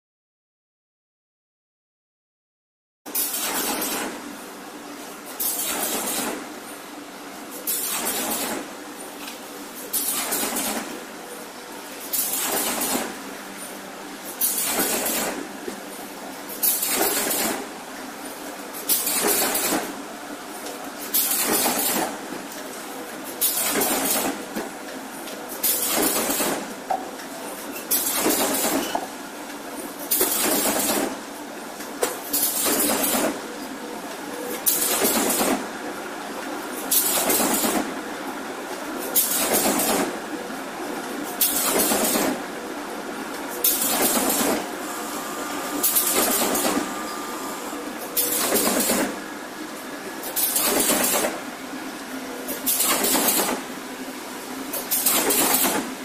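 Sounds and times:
machine running: 0:34.4 - 0:53.6.

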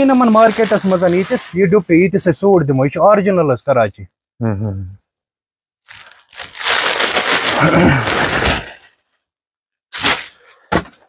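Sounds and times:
crinkling rustling handling noise: 0:00.0 - 0:01.7, 0:05.8 - 0:08.8.

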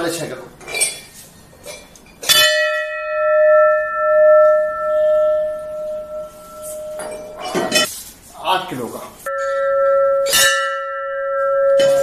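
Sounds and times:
brass bell ringing: 0:02.3 - 0:07.9, 0:09.3 - 0:12.0.

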